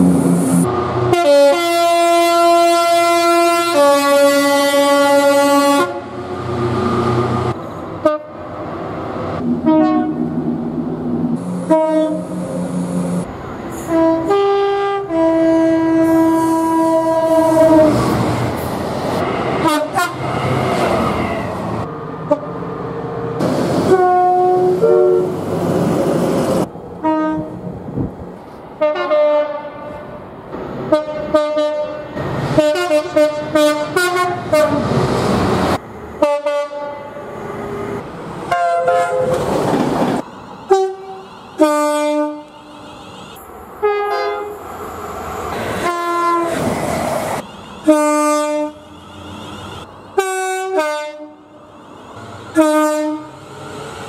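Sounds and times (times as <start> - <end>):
passing trains rumbling and clattering: 0.0 - 54.0
two-note train horn blasts: 9.6 - 10.3, 11.6 - 12.4, 13.8 - 17.9, 40.7 - 44.6, 47.4 - 51.6, 52.5 - 53.3.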